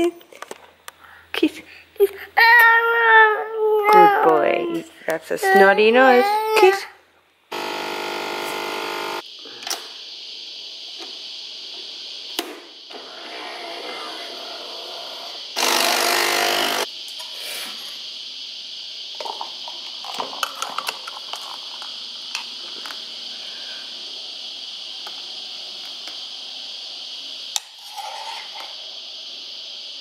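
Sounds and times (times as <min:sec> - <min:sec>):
coffee machine pump buzzing: 0:07.5 - 0:09.2, 0:15.6 - 0:16.9.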